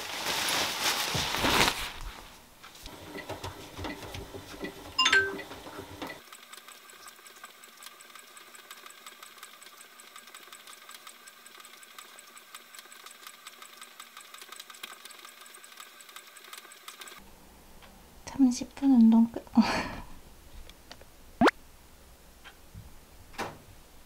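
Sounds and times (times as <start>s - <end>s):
exercise bike whirring and ticking: 2.9s - 17.2s.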